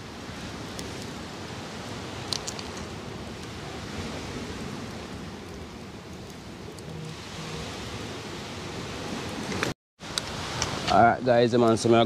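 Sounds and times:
steady rushing noise: 0:00.0 - 0:12.0
wooden sticks clicking on stones: 0:02.3 - 0:02.8.

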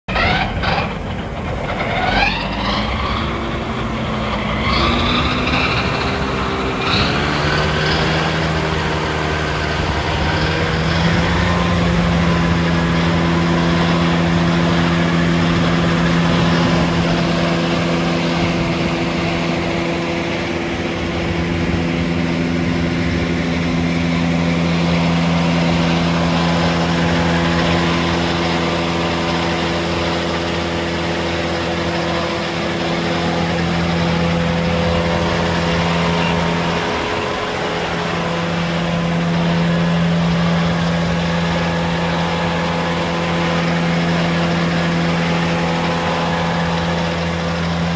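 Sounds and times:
tractor engine running: 0:00.0 - 0:47.9
mower drive whirring: 0:00.1 - 0:47.9.

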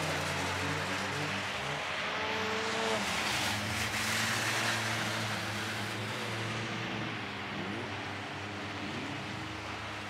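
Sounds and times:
car engines revving: 0:00.0 - 0:10.0.

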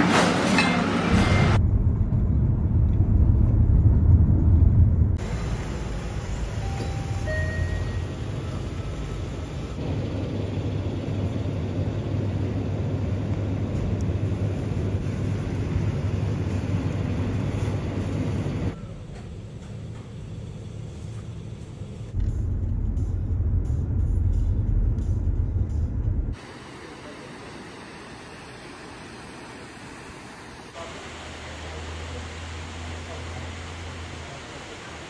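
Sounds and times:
car road noise rumble: 0:01.1 - 0:18.8, 0:21.0 - 0:26.4
faint two-tone chime: 0:06.6 - 0:08.8.

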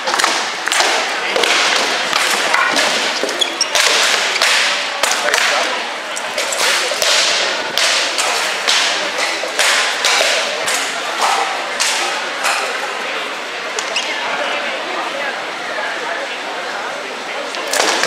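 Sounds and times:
rattan swords striking shields: 0:00.0 - 0:05.7, 0:06.3 - 0:12.8.

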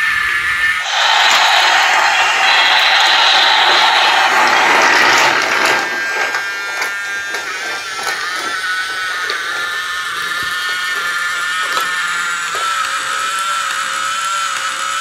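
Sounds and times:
toy train motor whining: 0:00.0 - 0:15.0
loud hiss: 0:00.8 - 0:07.5.

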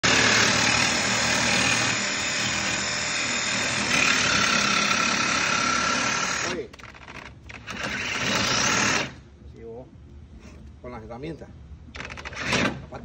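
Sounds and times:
power tool running: 0:00.0 - 0:06.7, 0:07.5 - 0:09.2.

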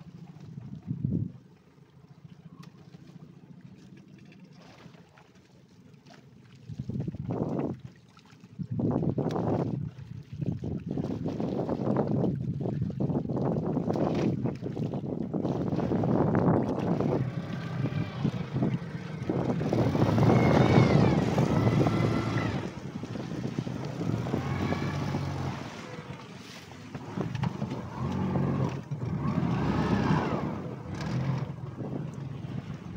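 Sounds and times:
boat engine revving: 0:15.4 - 0:32.9.

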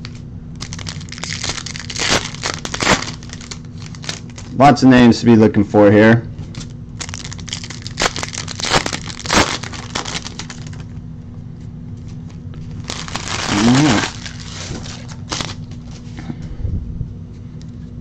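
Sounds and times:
foil wrapper tearing and crinkling: 0:00.0 - 0:04.6, 0:06.5 - 0:11.0, 0:12.6 - 0:16.0
rustle of foil and cards: 0:00.0 - 0:04.6, 0:06.5 - 0:10.9, 0:12.0 - 0:16.2.

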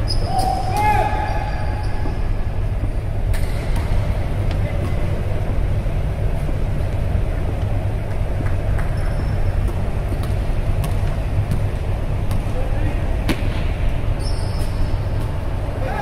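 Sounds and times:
low hall rumble: 0:00.0 - 0:16.0
basketball bouncing: 0:08.1 - 0:12.6, 0:13.2 - 0:13.9.

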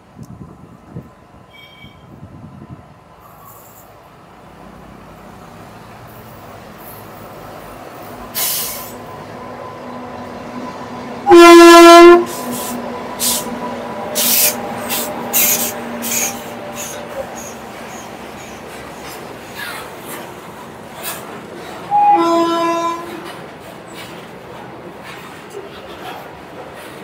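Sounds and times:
electric locomotive hum: 0:00.0 - 0:27.0
locomotive horn blast: 0:11.2 - 0:13.5, 0:21.9 - 0:23.4.

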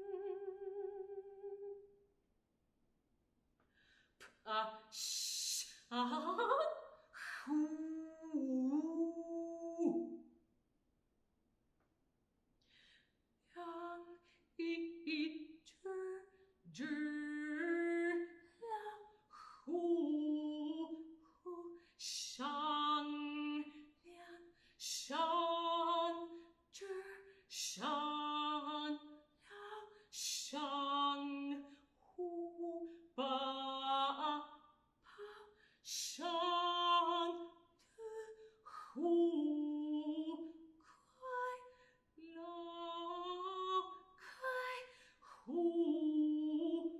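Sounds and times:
solo alto voice singing: 0:00.0 - 0:01.8, 0:45.5 - 0:46.9.

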